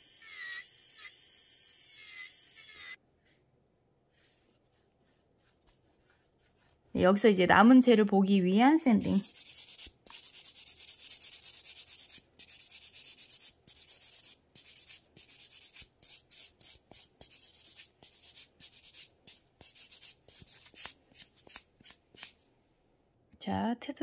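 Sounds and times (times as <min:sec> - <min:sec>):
nail buffer sanding a fingernail: 0:08.9 - 0:22.4.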